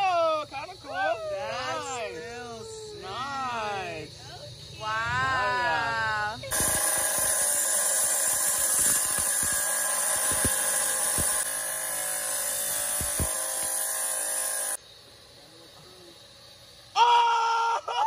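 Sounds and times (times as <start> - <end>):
wet saw cutting rock: 6.5 - 14.8.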